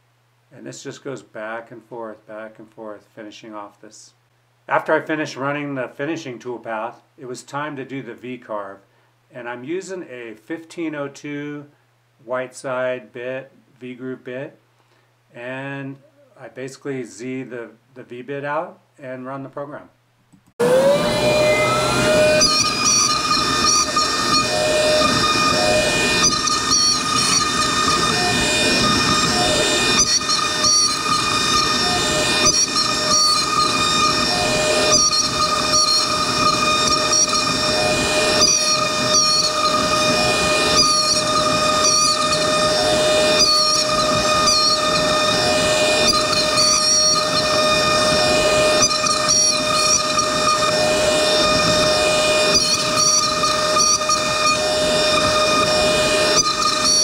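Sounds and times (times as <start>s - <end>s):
router spindle whining: 20.6s - 57.0s
hiss of bit cutting wood: 21.3s - 57.0s.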